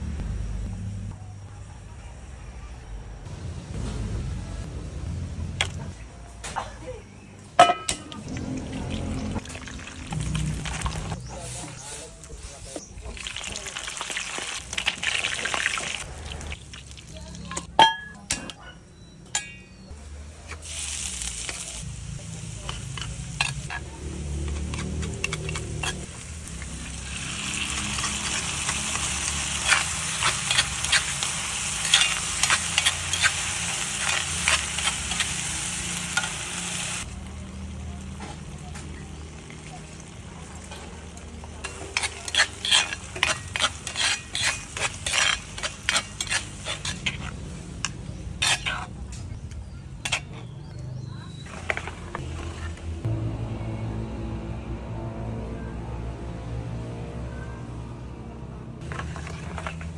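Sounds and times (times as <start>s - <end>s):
metal spoon clinking on pan: 7.6s - 8.2s, 17.5s - 19.8s
ginger sizzling in hot oil: 12.4s - 17.4s, 20.6s - 48.8s
metal spoon scraping a pan: 22.5s - 36.5s, 41.5s - 49.4s, 50.0s - 50.6s.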